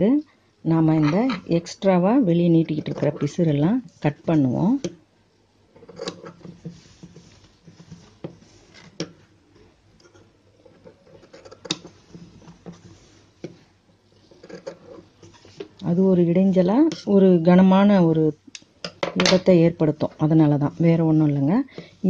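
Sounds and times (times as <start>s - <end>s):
cloth rustling: 6.4s - 11.2s.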